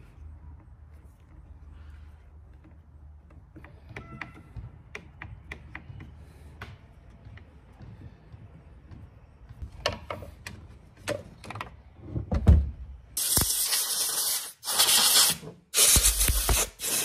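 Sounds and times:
tools knocking and clicking: 2.6s - 6.2s
air blow gun hissing: 13.2s - 17.0s.

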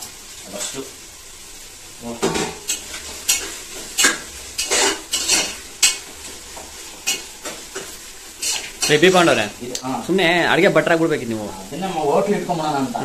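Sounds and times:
faint sizzle: 0.0s - 13.0s
spoon scraping metal pot: 2.7s - 6.0s, 8.4s - 9.1s.

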